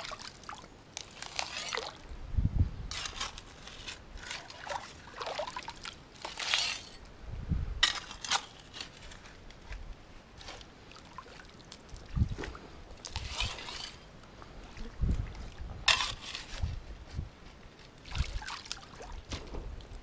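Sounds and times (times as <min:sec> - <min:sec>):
creek water splashing: 0:00.0 - 0:02.1, 0:04.2 - 0:06.9, 0:10.4 - 0:16.1, 0:18.0 - 0:20.0.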